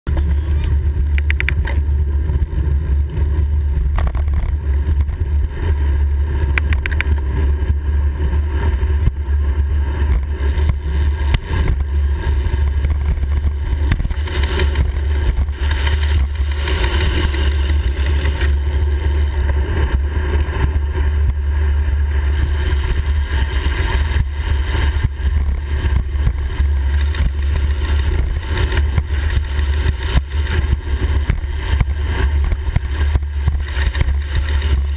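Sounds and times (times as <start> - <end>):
tyre and road noise: 0.1 - 34.9
wind buffeting microphone: 0.1 - 34.9
sharp clicks: 1.1 - 1.8, 6.5 - 7.2.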